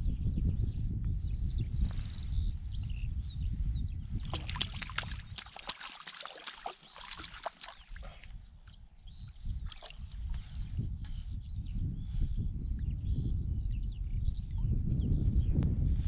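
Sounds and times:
water splashing and sloshing: 4.3s - 8.3s, 9.7s - 10.3s.

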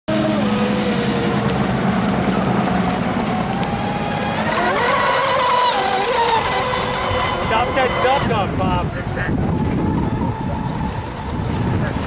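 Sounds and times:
rc speedboat motor drone: 0.1s - 12.0s.

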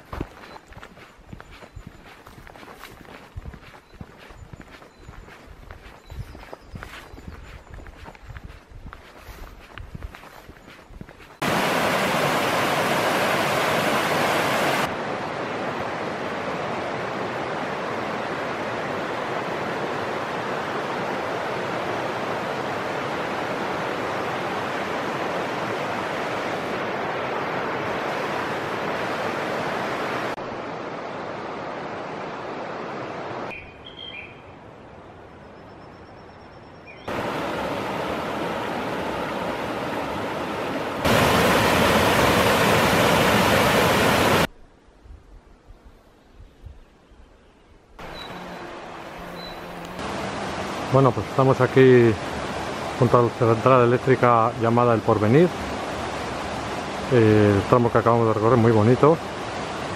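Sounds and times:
bird chirps: 0.3s - 2.7s, 3.6s - 8.3s, 33.5s - 34.6s, 35.4s - 37.1s, 47.0s - 49.9s
river rushing over rapids: 11.4s - 33.5s, 37.1s - 44.5s, 48.0s - 59.9s.

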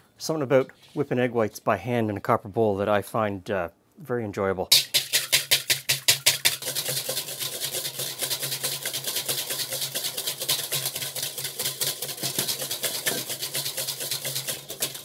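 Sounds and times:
whisk scraping metal bowl: 4.7s - 15.0s.

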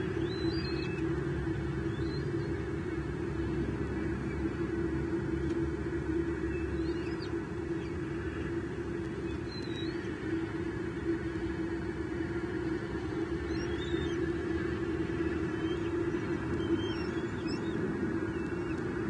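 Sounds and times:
outdoor rumble and hum: 0.0s - 19.0s
faint high bird chirps: 0.2s - 1.0s, 15.5s - 18.8s.

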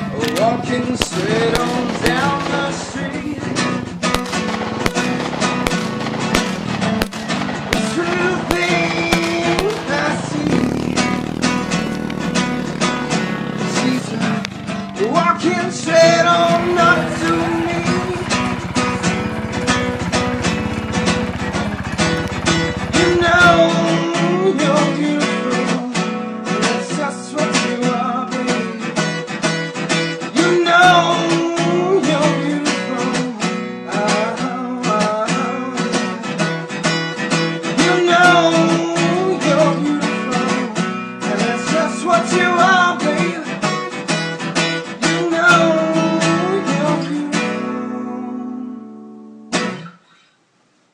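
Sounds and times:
acoustic guitar music: 0.0s - 50.5s.

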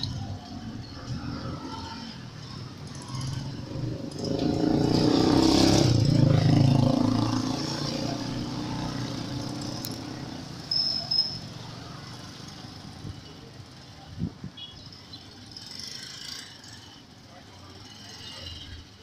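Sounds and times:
vehicle engine passing by: 3.0s - 10.3s
short high chirps: 10.7s - 11.5s.

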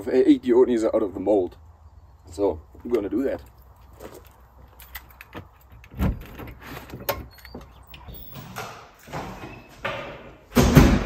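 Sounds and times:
footsteps scuffing: 2.7s - 4.8s
key unlocking door: 4.7s - 8.7s
door thump: 9.9s - 11.0s.

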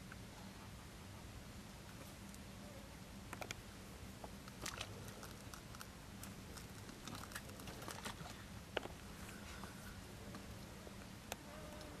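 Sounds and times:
branches rustling: 4.2s - 11.0s.

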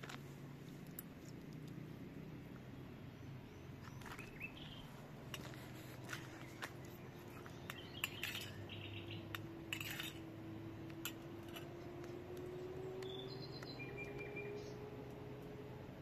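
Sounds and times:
faint bird chirps: 3.1s - 5.0s, 6.1s - 10.1s, 12.8s - 15.0s
metal spoon clinking on glass bowl: 7.7s - 8.7s.

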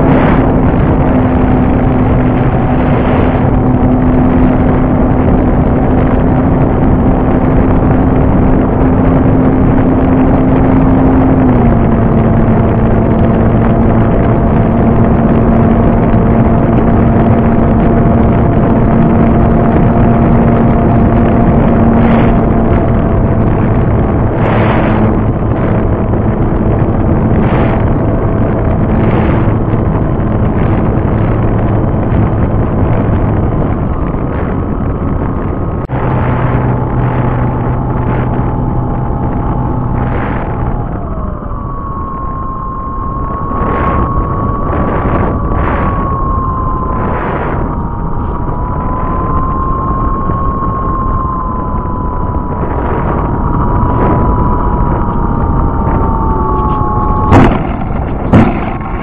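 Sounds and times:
model plane motor whine: 0.0s - 58.9s
wind rush on microphone: 0.0s - 59.0s.

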